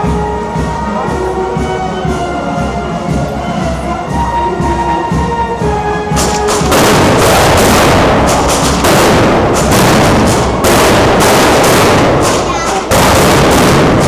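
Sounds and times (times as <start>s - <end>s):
brass band music: 0.0s - 14.0s
firecracker bangs: 6.2s - 14.0s.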